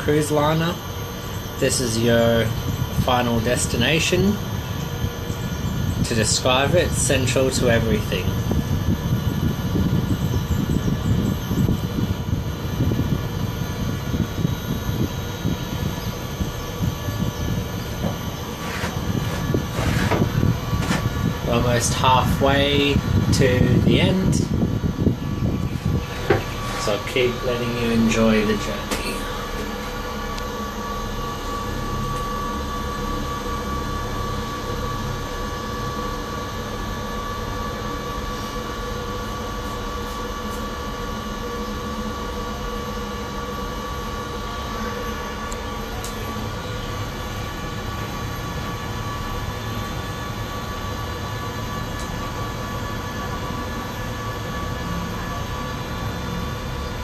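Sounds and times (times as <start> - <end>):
cable car hum and rumble: 0.0 - 57.0
steady tones: 15.1 - 31.2.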